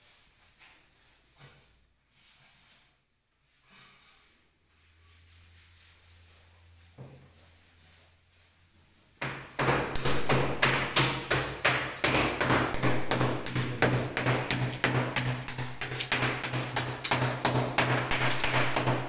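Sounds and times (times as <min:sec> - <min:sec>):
rapid hammering: 0:09.2 - 0:19.0.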